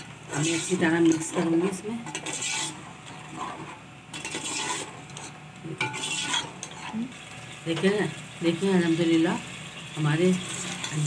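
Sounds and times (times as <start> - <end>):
metal ladle scraping pot: 0.0 - 7.1, 10.4 - 11.0.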